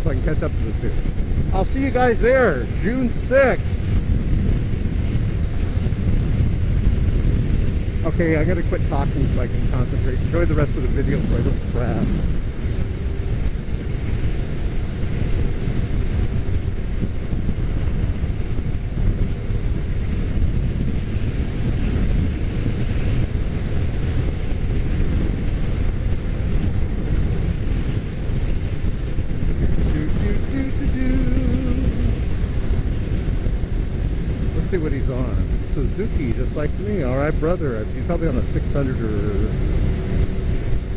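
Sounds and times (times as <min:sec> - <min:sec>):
motorcycle engine rumble: 0:00.0 - 0:40.9
wind buffeting microphone: 0:00.0 - 0:40.9.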